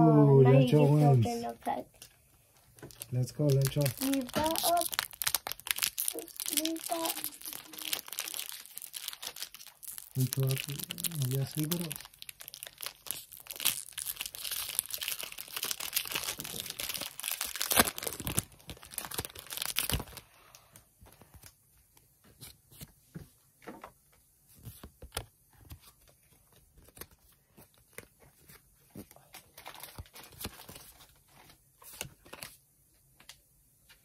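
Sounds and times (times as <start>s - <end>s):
cards and packaging rustling: 0.9s - 23.0s, 23.8s - 34.0s
foil wrapper tearing and crinkling: 2.8s - 20.4s, 29.3s - 31.2s.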